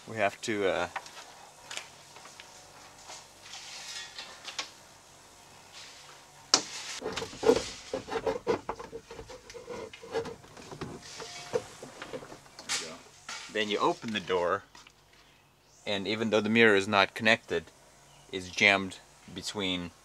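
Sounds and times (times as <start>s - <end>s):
plastic rubbing: 7.0s - 12.4s.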